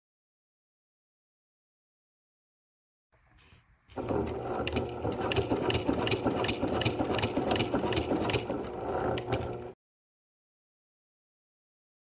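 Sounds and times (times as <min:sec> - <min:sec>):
sewing needle clatter: 0:03.4 - 0:09.7
sewing machine motor humming: 0:03.4 - 0:09.8.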